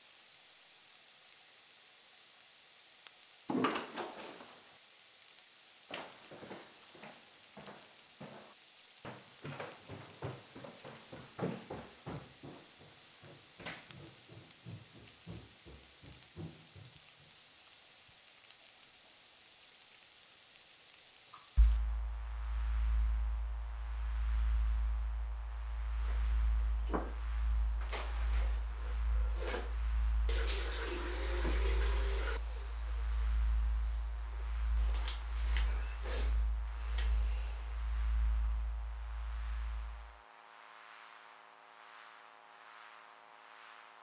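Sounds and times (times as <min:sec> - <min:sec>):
food sizzling in a frying pan: 0:00.0 - 0:21.6.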